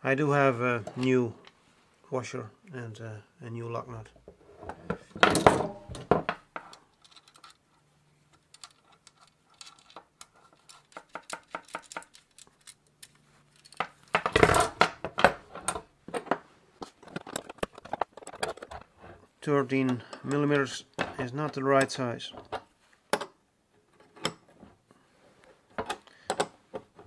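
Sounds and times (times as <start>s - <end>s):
small steel parts clinking: 6.9s - 7.6s, 8.4s - 14.1s.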